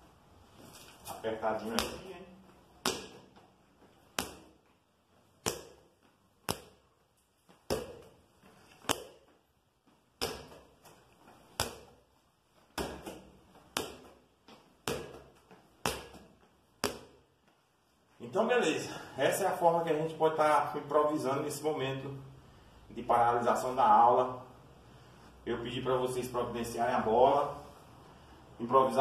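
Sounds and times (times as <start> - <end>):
ball bouncing on tiled floor: 1.7 - 12.0, 12.6 - 17.3.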